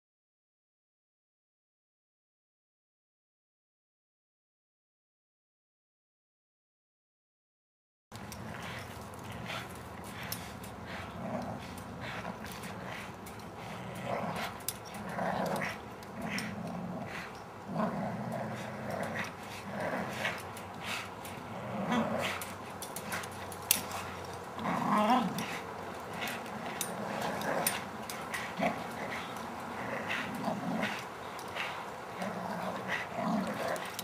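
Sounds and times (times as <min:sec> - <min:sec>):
dogs growling: 0:08.2 - 0:34.0.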